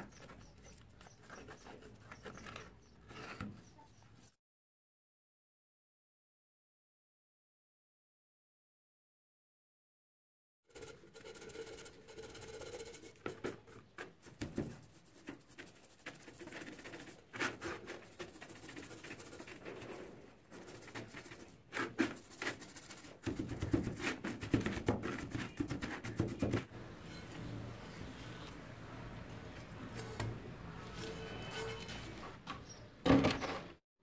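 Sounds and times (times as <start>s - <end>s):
hand tool scraping rusty metal: 30.8s - 32.3s.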